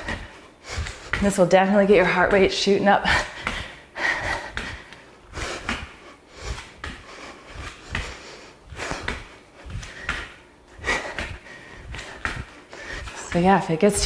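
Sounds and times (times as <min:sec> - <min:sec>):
woman breathing hard: 0:00.0 - 0:01.2, 0:03.0 - 0:13.3
bare feet thudding on a mat: 0:00.0 - 0:14.0.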